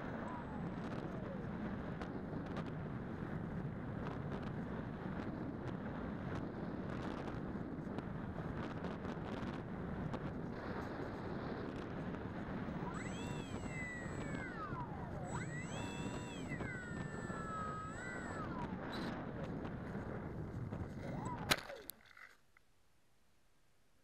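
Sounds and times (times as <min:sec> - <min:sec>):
electric motor whining: 0:11.9 - 0:22.3.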